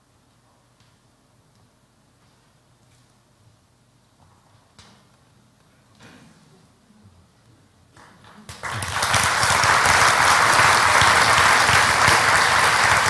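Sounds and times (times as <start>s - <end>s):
audience applause: 8.5s - 13.0s.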